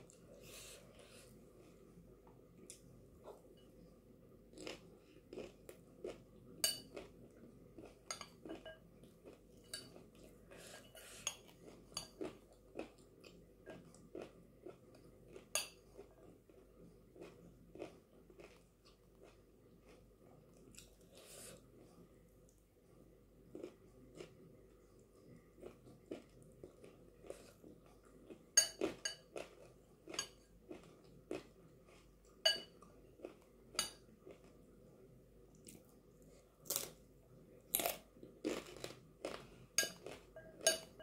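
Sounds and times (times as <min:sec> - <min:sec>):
chewing and crunching: 0:04.5 - 0:10.7, 0:11.3 - 0:21.3, 0:23.4 - 0:34.8, 0:37.7 - 0:40.8
metal spoon clinking in glass bowl: 0:32.5 - 0:32.8, 0:39.8 - 0:41.0.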